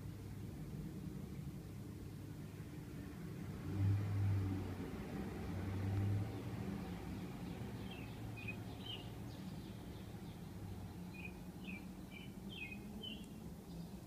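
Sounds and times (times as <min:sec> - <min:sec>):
bird chirping: 0:07.4 - 0:14.0.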